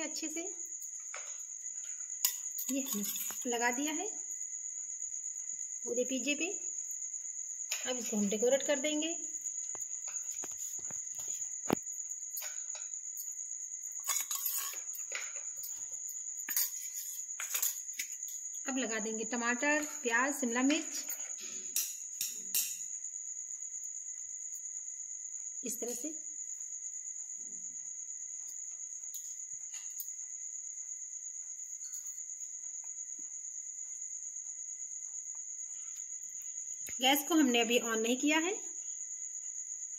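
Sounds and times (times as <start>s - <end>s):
crickets trilling: 0.0s - 39.9s
metal spoon scraping pizza base: 14.0s - 14.9s.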